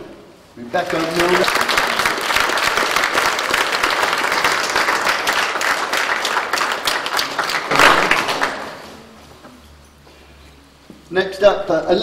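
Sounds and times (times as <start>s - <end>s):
audience applauding: 0.8s - 8.9s.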